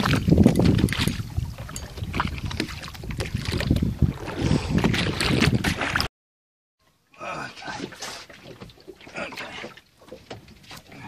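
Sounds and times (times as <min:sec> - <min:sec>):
water splashing against boat: 0:00.0 - 0:06.1, 0:07.2 - 0:11.0
wind buffeting microphone: 0:00.0 - 0:06.1.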